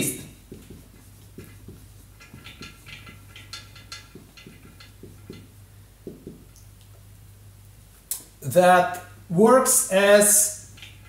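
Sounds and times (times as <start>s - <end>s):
marker squeaking on whiteboard: 0.0s - 3.5s.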